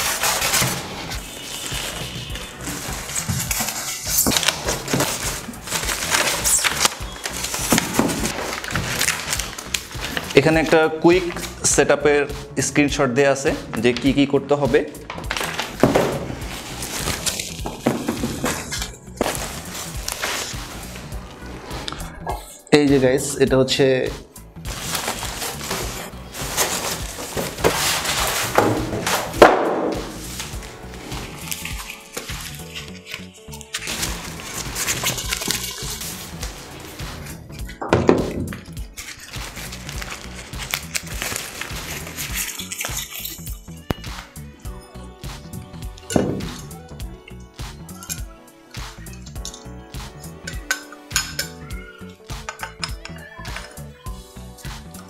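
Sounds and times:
packing material crackling and rustling: 0.0s - 11.7s, 15.1s - 21.5s, 24.7s - 37.8s, 38.5s - 44.0s
background music: 0.0s - 55.0s.

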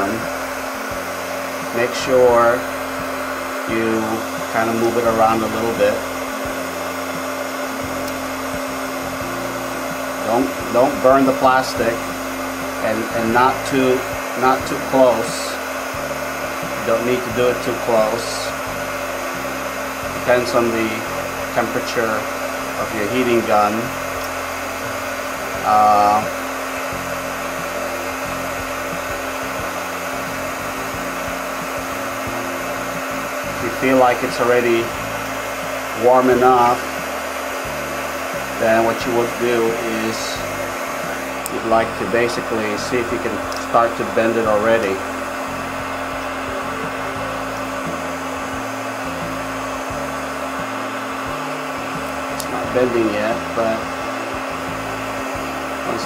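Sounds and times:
heat gun blowing air: 0.0s - 56.0s.

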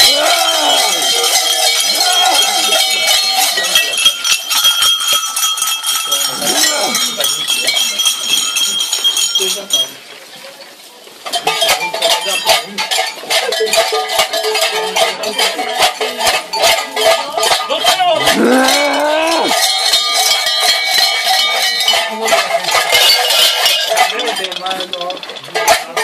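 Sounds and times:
cowbells clanging and rattling: 0.0s - 26.0s
person crying out: 18.2s - 19.5s.

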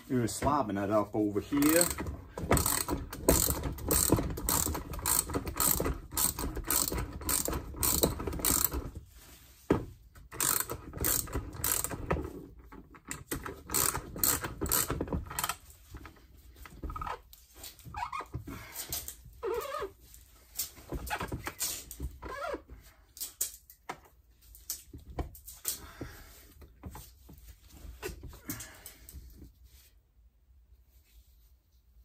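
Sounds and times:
metallic ratcheting clicks: 1.6s - 8.8s, 10.4s - 12.0s, 13.1s - 15.6s.

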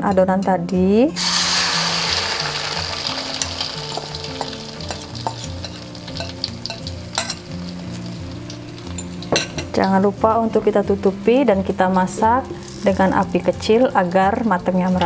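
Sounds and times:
oil spitting crackles: 1.2s - 9.4s
batter sizzling in hot oil: 1.2s - 13.5s.

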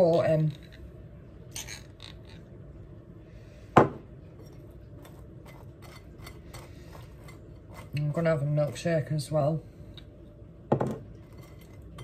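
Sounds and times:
knife scraping in glass jar: 4.4s - 8.8s, 11.2s - 12.0s
glass jar knocked on worktop: 10.7s - 11.0s.

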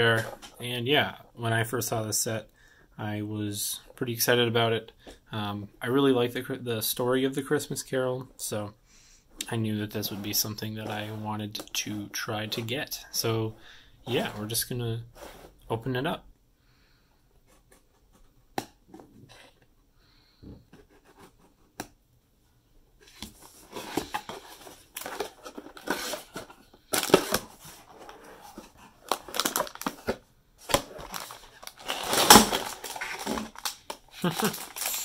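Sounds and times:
cardboard scraping and crinkling: 23.0s - 34.9s.

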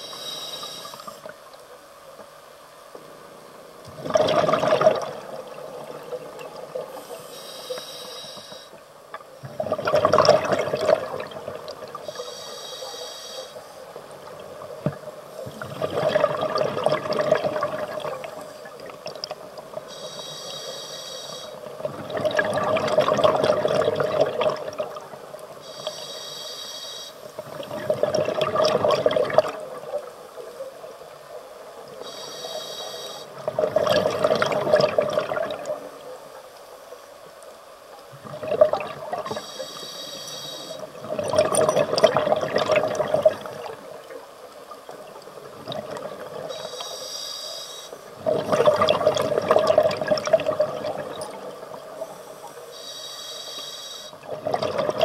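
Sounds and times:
regulator inhalation hiss: 0.0s - 1.3s, 6.9s - 8.8s, 12.0s - 14.0s, 19.9s - 21.8s, 25.6s - 27.4s, 31.9s - 33.4s, 39.3s - 41.0s, 46.4s - 48.1s, 52.0s - 54.2s
exhaled bubbles rushing: 4.0s - 5.9s, 9.5s - 11.9s, 15.5s - 19.3s, 21.8s - 25.0s, 27.5s - 29.7s, 33.4s - 35.7s, 38.2s - 39.4s, 41.0s - 43.8s, 48.2s - 51.8s, 54.2s - 55.0s.

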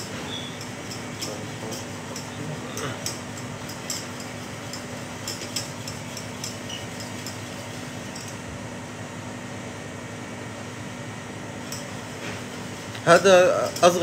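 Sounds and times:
whisk clinking against saucepan: 0.0s - 8.4s
steady hum: 0.0s - 14.0s.

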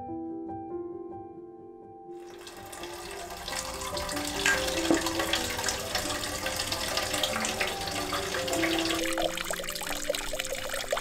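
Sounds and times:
water splashing into metal can: 2.2s - 11.0s.

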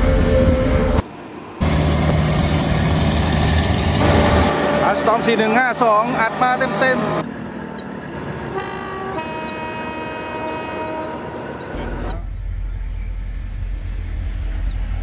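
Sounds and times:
train horn: 4.0s - 6.0s, 8.5s - 11.3s
low rumble: 11.8s - 15.0s.

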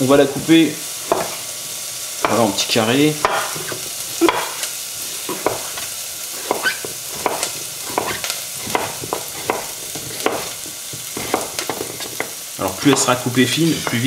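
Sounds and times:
shallots sizzling in oil: 0.0s - 14.0s
knife chopping on cutting board: 1.1s - 1.4s, 3.2s - 4.7s, 5.3s - 13.2s.

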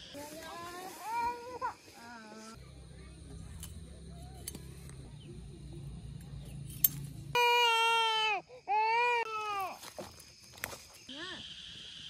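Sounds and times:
baby crying: 7.4s - 9.8s.

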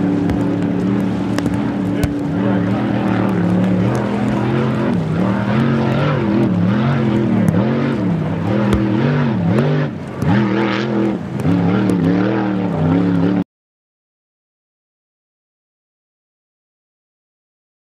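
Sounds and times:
racing boat engine: 0.0s - 13.4s.

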